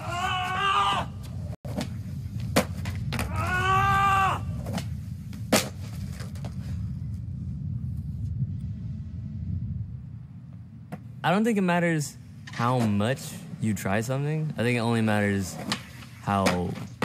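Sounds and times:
low rumble: 0:01.1 - 0:14.7
skateboard clacking on concrete: 0:15.6 - 0:17.0.

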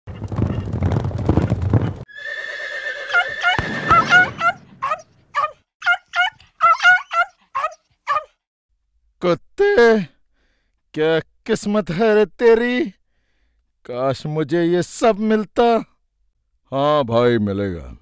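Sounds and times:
cartoon horse hoofbeats galloping: 0:00.1 - 0:02.0
horse whinny: 0:02.1 - 0:05.0
short high calls: 0:02.1 - 0:08.3.

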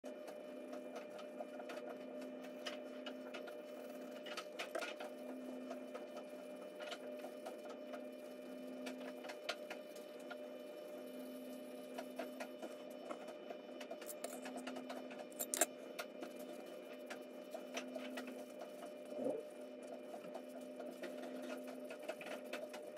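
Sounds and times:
steady hum: 0:00.1 - 0:22.9
pencil scratching on paper: 0:02.5 - 0:05.0.

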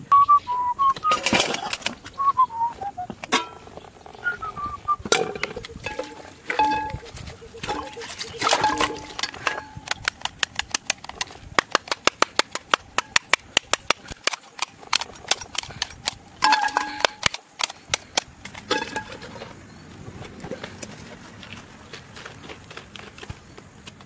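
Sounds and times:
rapid sharp clicking knocks: 0:09.8 - 0:16.2.

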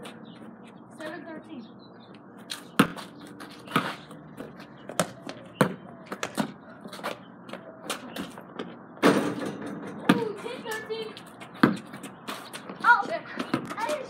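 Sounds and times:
basketball bouncing on hard court: 0:02.8 - 0:03.1, 0:04.9 - 0:06.6, 0:10.0 - 0:10.4, 0:11.4 - 0:12.5.

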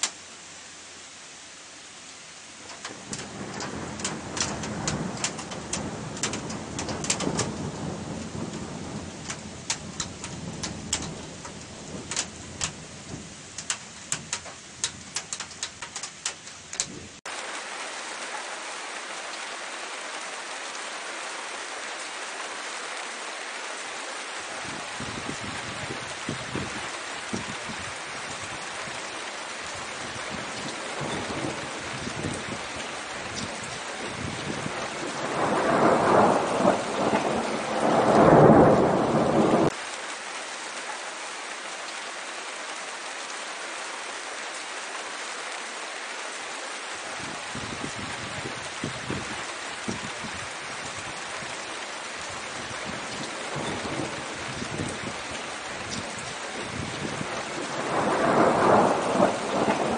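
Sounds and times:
steady rain: 0:00.0 - 0:59.9
thunder rumbling: 0:02.7 - 0:17.2, 0:29.8 - 0:39.8, 0:52.2 - 0:59.9.

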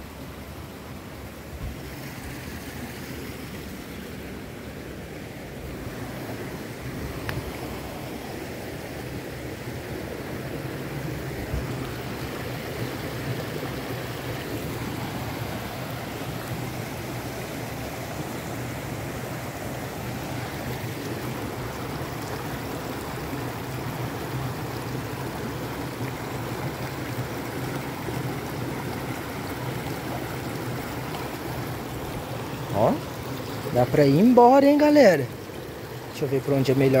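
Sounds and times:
creek rushing over rocks: 0:00.0 - 0:37.0.

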